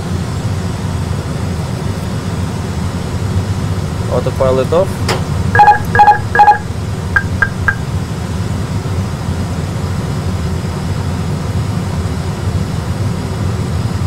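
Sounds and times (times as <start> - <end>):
cockpit engine and air rumble: 0.0 - 14.0
short high warning pips: 5.6 - 7.9.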